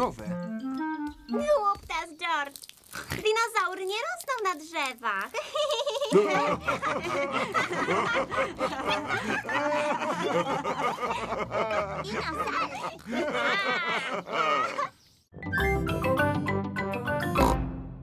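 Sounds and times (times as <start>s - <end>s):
cartoon characters laughing: 5.4s - 15.0s.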